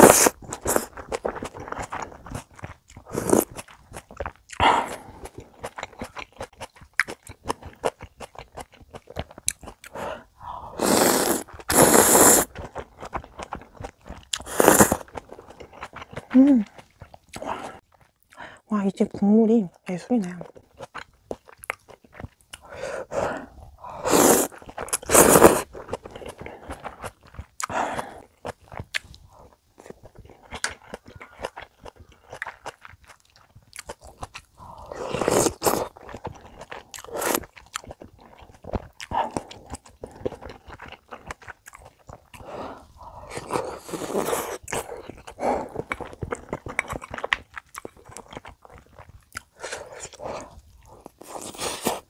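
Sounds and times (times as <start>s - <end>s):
wet chewing: 0.0s - 18.6s, 20.3s - 52.0s
noodles slurped: 9.9s - 12.8s, 14.2s - 15.2s, 22.6s - 28.3s.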